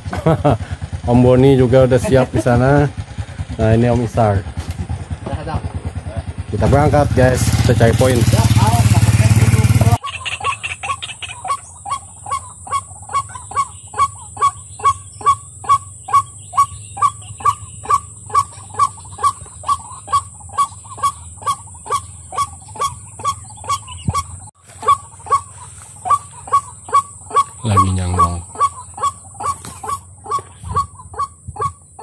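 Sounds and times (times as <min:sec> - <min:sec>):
bird honking croaks: 0:06.7 - 0:32.0.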